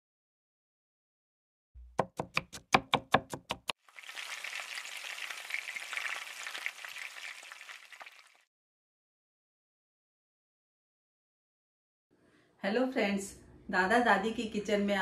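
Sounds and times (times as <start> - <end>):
knife chopping on cutting board: 1.8 - 3.7
food sizzling in frying pan: 3.8 - 8.5.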